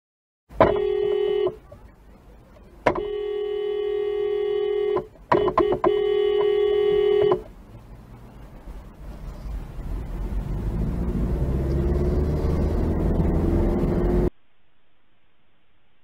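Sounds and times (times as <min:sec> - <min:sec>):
car horn blasts: 0:00.6 - 0:01.8, 0:02.8 - 0:07.5.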